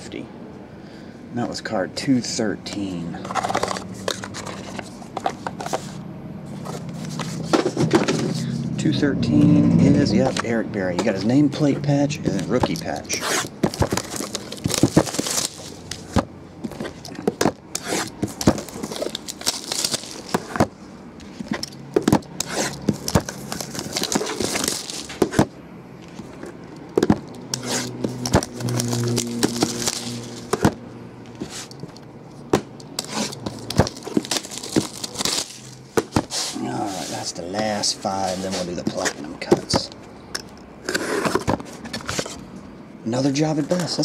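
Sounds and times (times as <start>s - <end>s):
plastic wrap crinkling and tearing: 12.4s - 16.1s, 17.8s - 20.6s, 22.4s - 25.2s, 27.6s - 30.5s, 33.0s - 35.9s
boxes knocking on tabletop: 27.0s - 27.3s.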